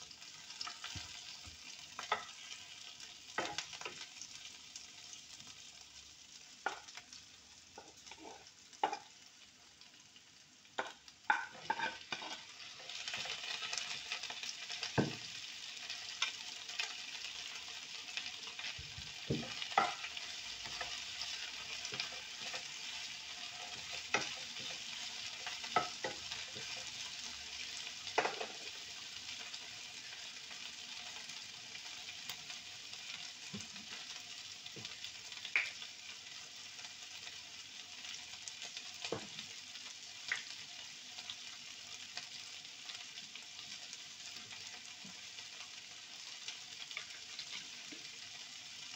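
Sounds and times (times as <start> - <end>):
food sizzling in frying pan: 0.0 - 48.9
wooden spatula scraping pan: 11.3 - 12.4.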